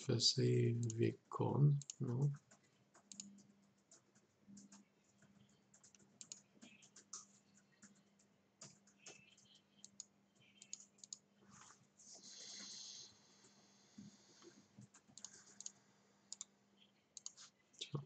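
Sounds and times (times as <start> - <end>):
keyboard typing and clicking: 1.8 - 11.3, 14.8 - 16.5, 17.2 - 17.4.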